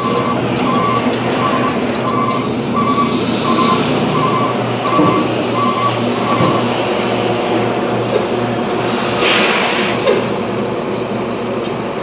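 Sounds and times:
backup alarm beep: 0:00.0 - 0:06.7
truck engine running: 0:00.0 - 0:12.0.

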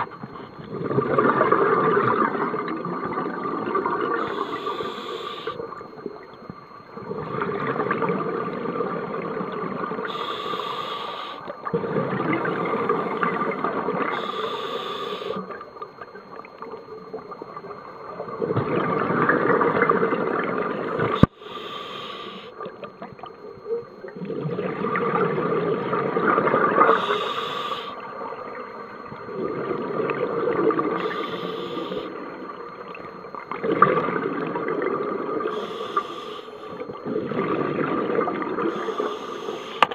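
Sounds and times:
exhaled bubbles gurgling: 0:00.0 - 0:39.9
regulator inhale hiss: 0:04.2 - 0:05.6, 0:10.0 - 0:11.5, 0:14.1 - 0:15.4, 0:21.1 - 0:22.5, 0:26.9 - 0:28.1, 0:30.9 - 0:32.2, 0:35.5 - 0:36.8, 0:38.7 - 0:39.9.

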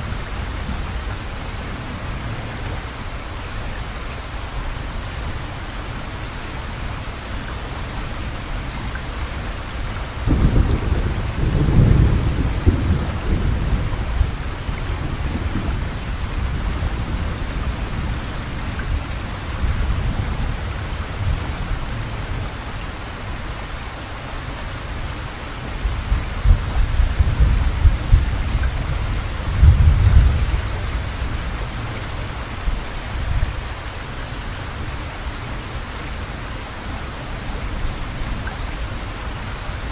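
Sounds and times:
rain falling: 0:00.0 - 0:39.9
thunder rumbling: 0:10.2 - 0:22.1, 0:25.8 - 0:32.0.

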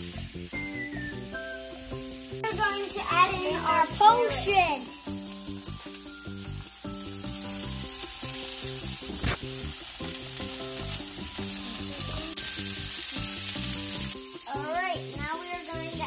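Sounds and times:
vegetables sizzling in oil: 0:00.0 - 0:16.0.

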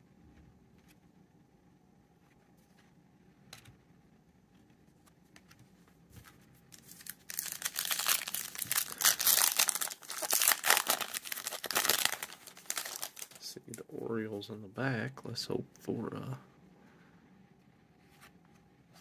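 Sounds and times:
foil wrapper tearing and crinkling: 0:06.8 - 0:13.5.

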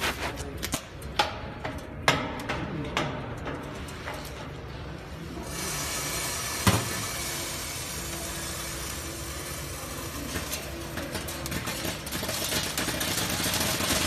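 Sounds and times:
machine running with steady hiss: 0:05.0 - 0:14.0.

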